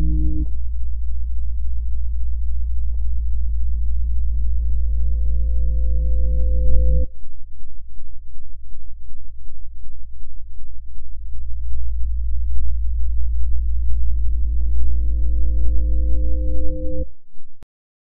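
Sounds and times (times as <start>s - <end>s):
low electronic drone: 0.0s - 7.2s, 11.3s - 17.1s
low pulsing hum: 0.0s - 17.6s.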